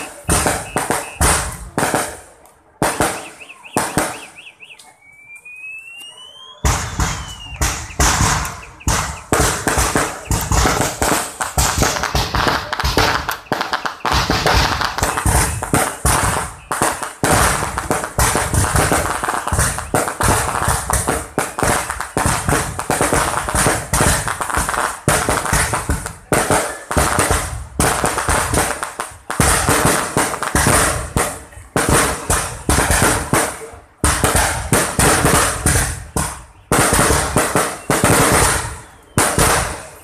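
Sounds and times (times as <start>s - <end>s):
firework whistles: 0.0s - 1.7s, 2.8s - 24.4s, 34.2s - 40.0s
firework bangs and crackling: 0.0s - 4.6s, 5.4s - 40.0s.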